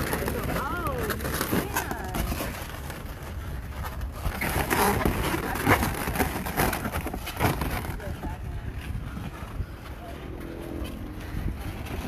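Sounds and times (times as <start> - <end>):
balloons rubbing and creaking: 0.0 - 12.0
balloon scrapes: 4.2 - 8.1
low rumble: 8.3 - 12.0.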